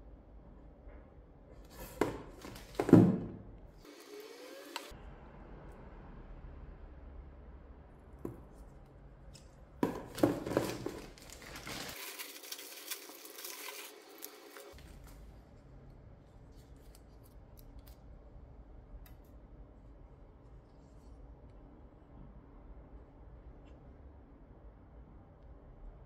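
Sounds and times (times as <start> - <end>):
plastic packaging crinkling: 9.8 - 15.2.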